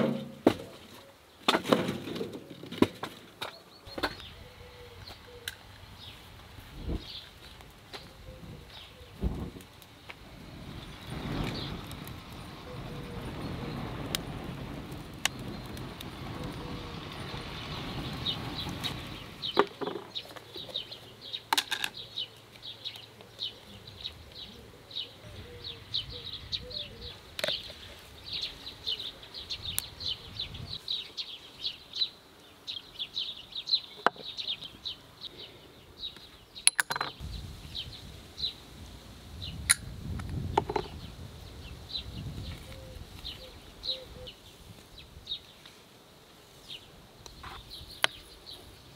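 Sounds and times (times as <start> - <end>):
wood fire burning: 5.0 - 21.4.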